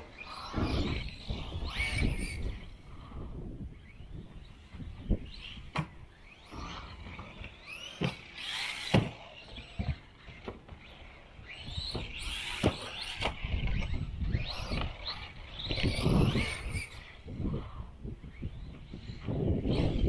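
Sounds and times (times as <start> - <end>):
electric motor whining: 0.0 - 20.0.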